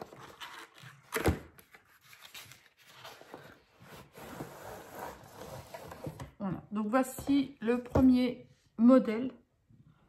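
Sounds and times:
cardboard scraping and rustling: 0.0 - 6.3.

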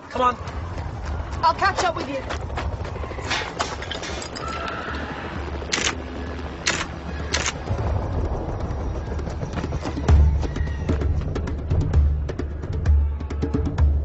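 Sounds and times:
low rumble: 0.4 - 13.2
camera shutter clicking: 5.7 - 6.0, 6.7 - 7.6.

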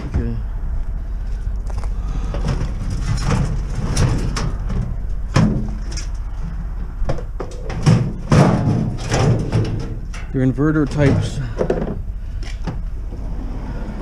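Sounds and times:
steady low rumble: 0.0 - 14.0
knocks and clatter on metal floor: 2.3 - 6.1, 7.0 - 12.0.

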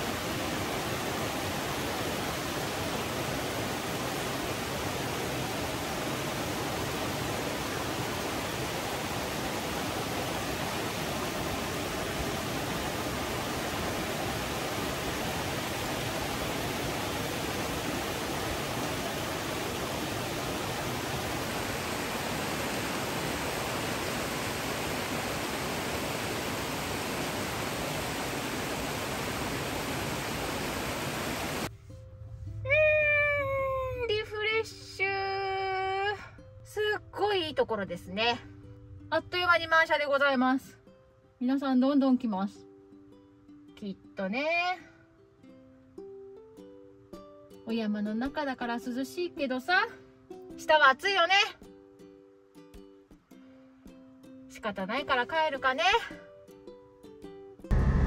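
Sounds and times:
stream rushing over rocks: 0.0 - 31.7.

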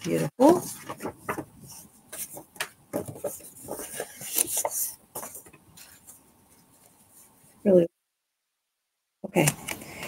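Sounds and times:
paper rustling and sliding: 0.4 - 7.4.

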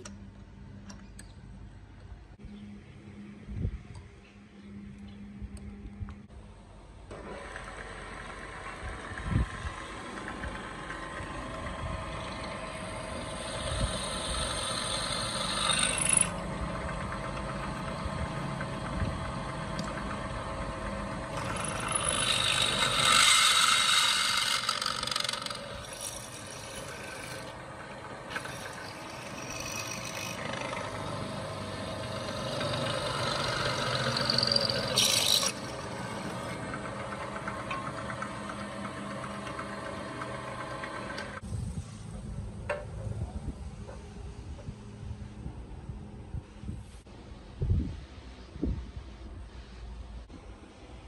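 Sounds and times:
drill press motor hum: 7.1 - 41.4
drill bit cutting steel: 10.3 - 41.4.

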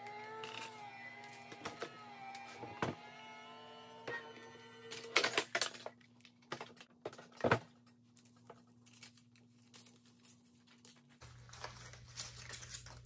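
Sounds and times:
paper rustling: 8.1 - 13.0.

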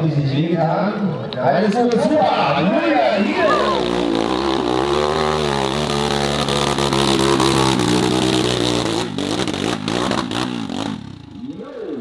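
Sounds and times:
dirt bike engine at high revs: 3.0 - 12.0.

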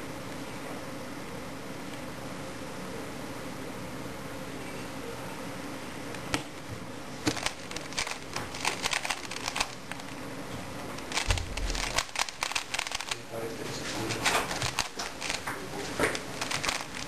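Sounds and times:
puzzle cube clicking and clattering: 7.2 - 10.2, 11.0 - 13.2, 13.8 - 17.0.

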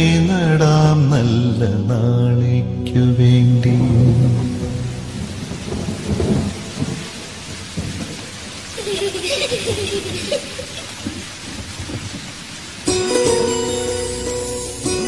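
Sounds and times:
low thumps: 2.8 - 8.2
wind buffeting microphone: 9.6 - 12.6.

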